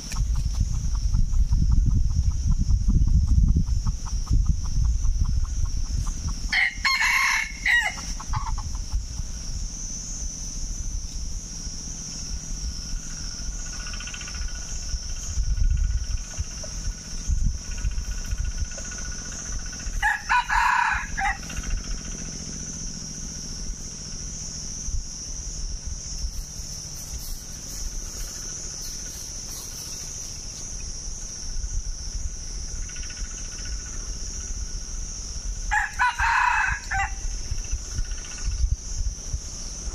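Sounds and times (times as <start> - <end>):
rooster crowing: 6.5 - 8.6, 19.9 - 21.6, 35.7 - 37.4.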